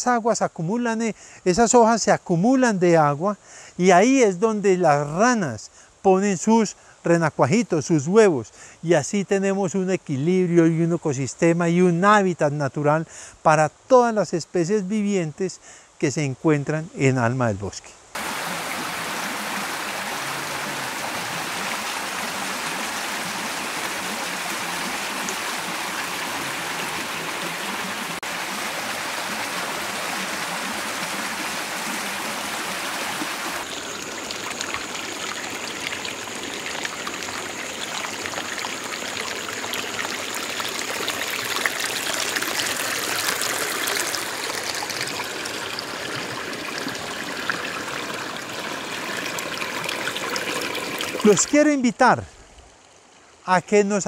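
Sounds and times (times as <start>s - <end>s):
water trickling and splashing: 18.1s - 53.4s
stream rushing over rocks: 18.2s - 52.7s.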